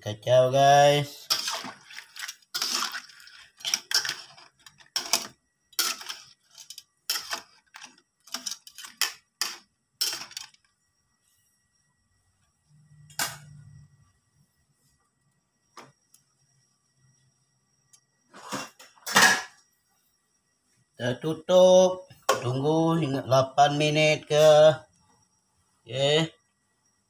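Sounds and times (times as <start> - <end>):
metal spatula scraping a wok: 1.2 - 9.0.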